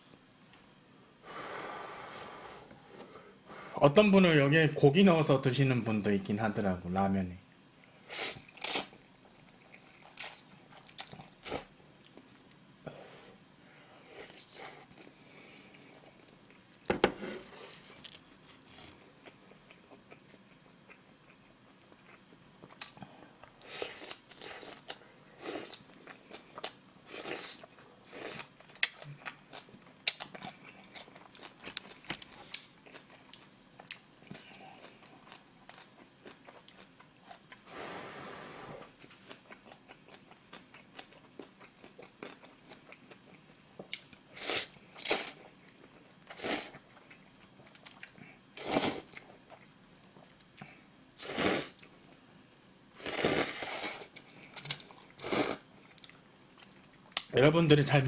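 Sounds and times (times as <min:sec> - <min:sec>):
man slurping noodles: 0:51.2 - 0:51.8, 0:53.0 - 0:54.0.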